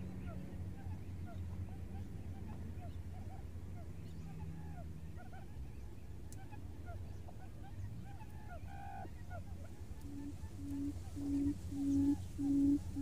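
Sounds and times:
quail calls: 0.2s - 13.0s
low hum: 9.5s - 13.0s.

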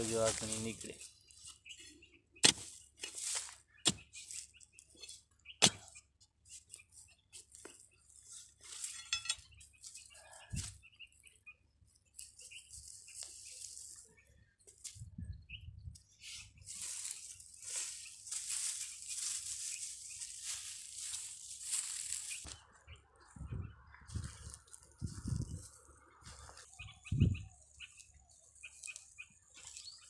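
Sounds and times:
metal bar clinking on stones: 8.9s - 9.5s.

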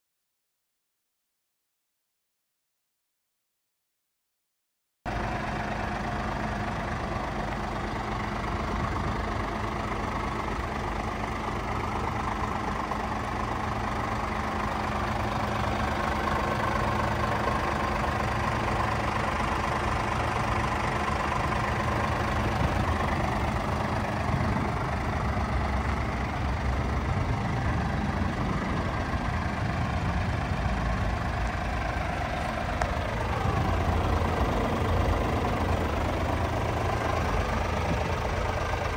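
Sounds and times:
diesel engine idling: 5.1s - 38.9s.

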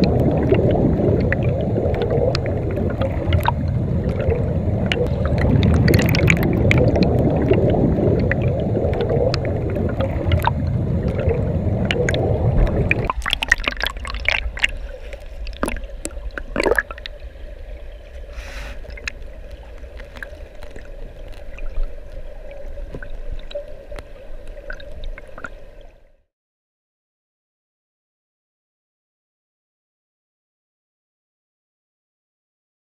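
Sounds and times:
faint steady hum: 0.0s - 26.2s
turbulent water and bubbles underwater: 0.0s - 26.3s.

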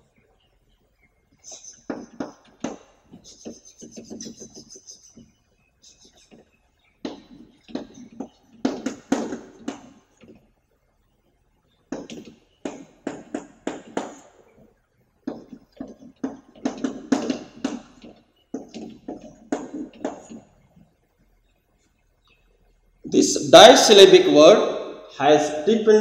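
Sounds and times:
chalk tapping and scratching: 1.4s - 10.4s, 11.9s - 14.4s, 15.2s - 20.5s.

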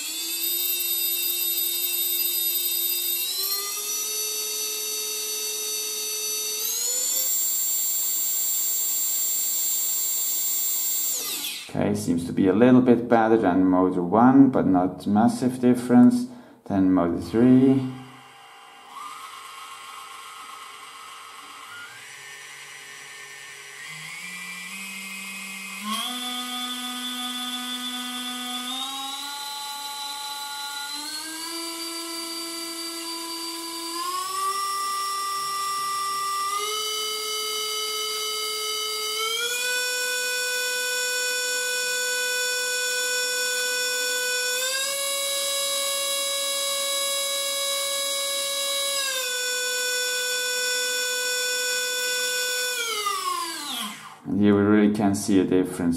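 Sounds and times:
brushless motor whine rising: 0.0s - 11.9s, 17.7s - 54.4s.

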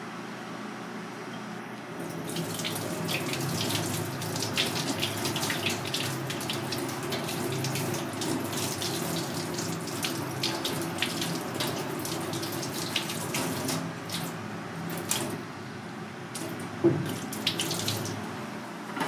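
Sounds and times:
tap water splashing into sink: 16.4s - 18.2s.

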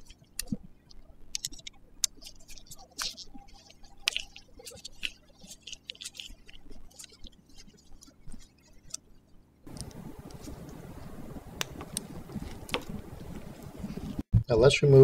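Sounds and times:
steady hiss: 9.7s - 14.2s.

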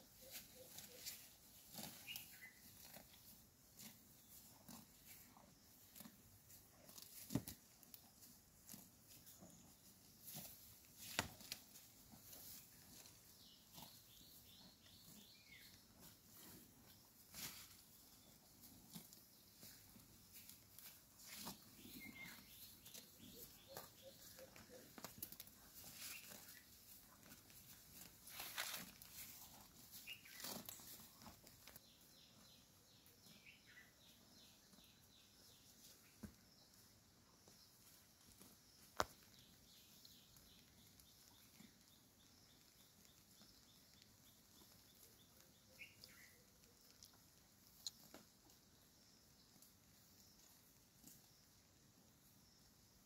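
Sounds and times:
animal tearing and chewing grass: 27.2s - 31.8s.

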